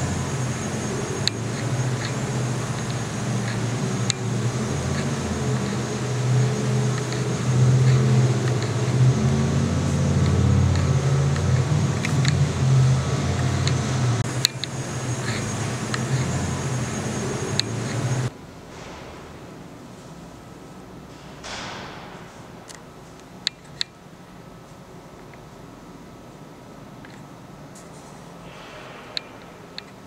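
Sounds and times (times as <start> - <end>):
low rumbling drone: 0.0 - 23.1.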